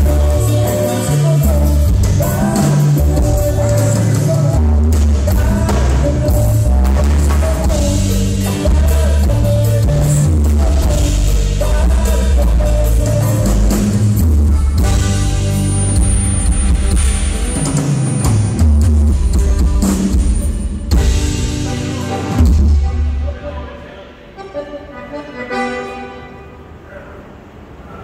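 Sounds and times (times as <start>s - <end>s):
electric bass line: 0.0s - 23.6s
button accordion melody: 0.0s - 26.6s
live band playing: 0.0s - 26.8s.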